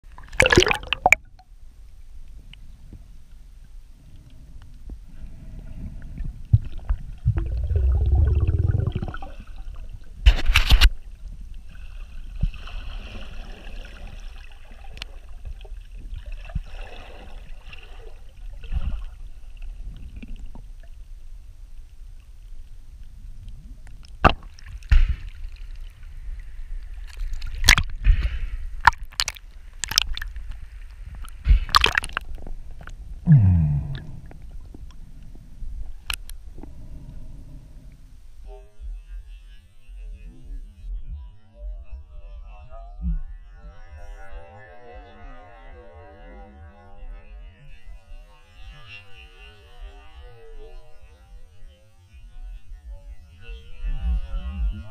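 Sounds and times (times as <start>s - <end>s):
underwater sloshing and gurgling: 0.1s - 39.2s
water rushing: 0.3s - 1.2s.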